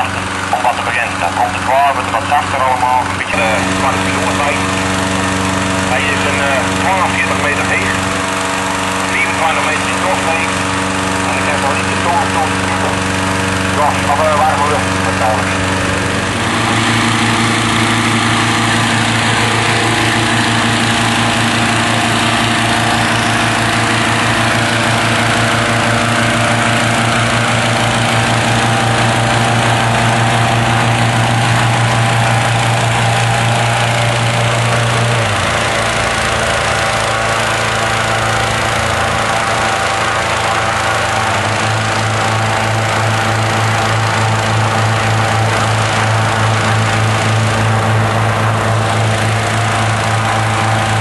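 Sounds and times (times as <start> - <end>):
inflator fan engine running: 0.0 - 51.0.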